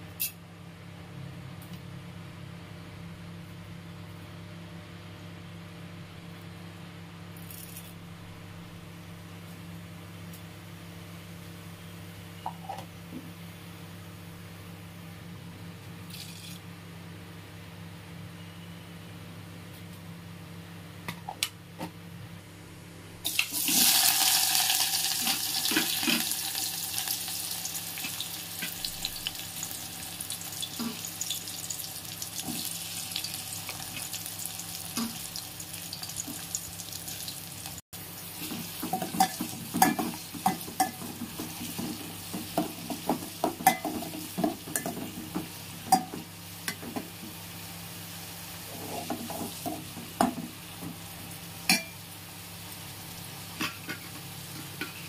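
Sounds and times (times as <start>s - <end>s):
onions sizzling in hot oil: 23.3s - 53.6s.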